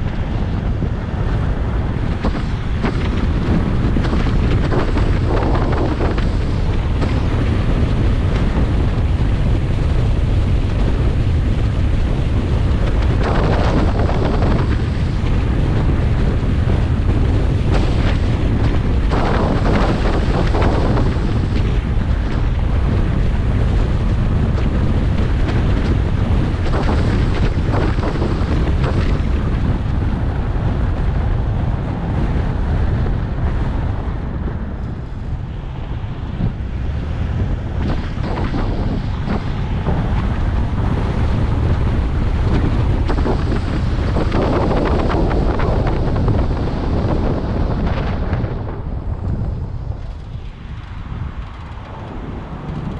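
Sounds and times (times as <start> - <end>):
road rumble: 0.0 - 52.9
wind buffeting microphone: 0.0 - 52.9.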